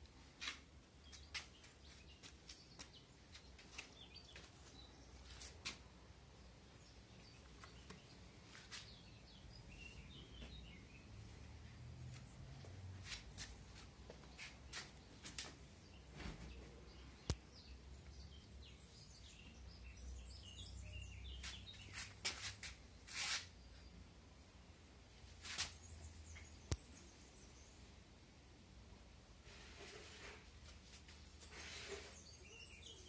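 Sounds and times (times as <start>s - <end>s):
faint bird chirps: 31.3s - 33.0s.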